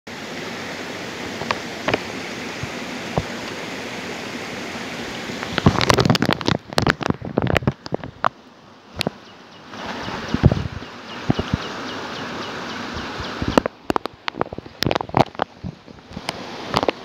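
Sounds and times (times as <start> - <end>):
steady rushing noise: 0.1 - 17.0
loud crackles and knocks: 1.4 - 3.6, 5.4 - 8.4, 13.4 - 17.0
sharp clicks: 13.5 - 17.0.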